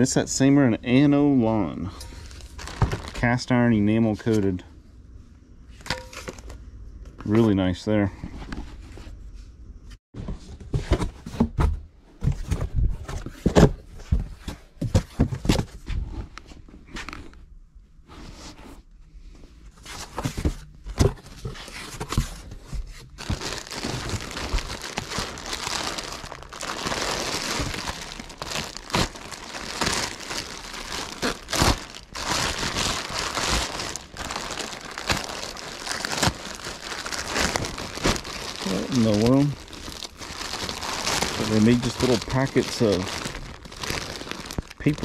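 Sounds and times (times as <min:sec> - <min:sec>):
plastic wrapping crinkling: 0:02.2 - 0:03.4, 0:23.1 - 0:45.0.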